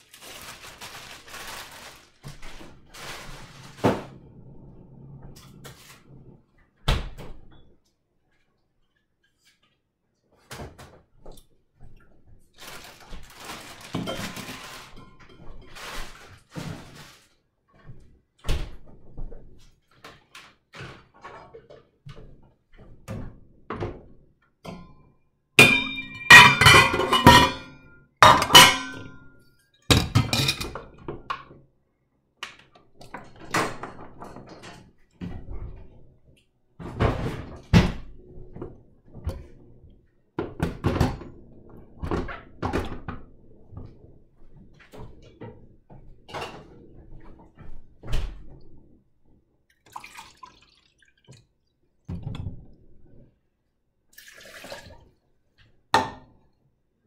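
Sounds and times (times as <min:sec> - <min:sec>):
objects clattering in metal sink: 0:00.1 - 0:04.2, 0:12.6 - 0:18.0, 0:25.6 - 0:31.6, 0:33.0 - 0:35.9
kitchen items knocking in sink: 0:25.6 - 0:29.3, 0:29.9 - 0:31.6.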